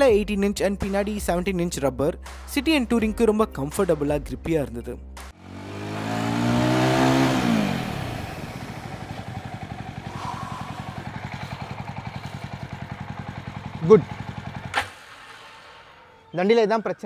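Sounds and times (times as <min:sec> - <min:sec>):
motorcycle engine revving and idling: 0:05.3 - 0:16.4.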